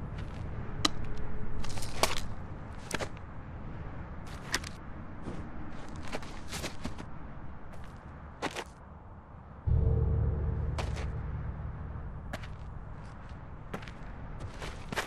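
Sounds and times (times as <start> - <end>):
low steady rumble: 9.7 - 15.0.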